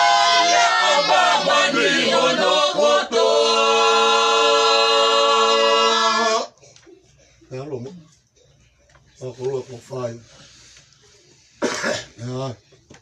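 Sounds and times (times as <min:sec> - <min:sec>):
group singing a cappella: 0:00.0 - 0:06.5.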